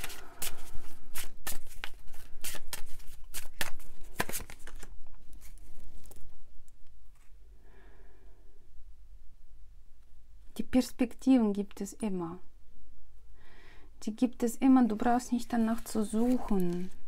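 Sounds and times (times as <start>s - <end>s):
cards being shuffled: 0.0s - 6.4s, 15.6s - 17.0s.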